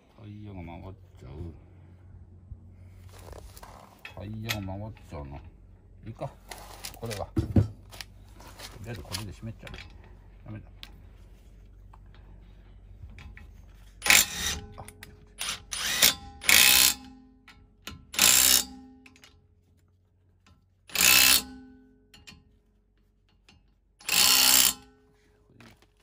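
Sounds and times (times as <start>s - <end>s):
impact wrench bursts: 14.0s - 17.2s, 18.0s - 18.9s, 20.9s - 21.6s, 24.0s - 24.9s.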